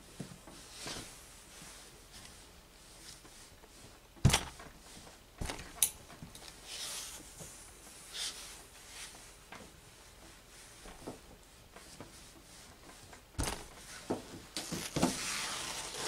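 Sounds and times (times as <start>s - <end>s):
iron thudding on table: 13.4s - 13.8s.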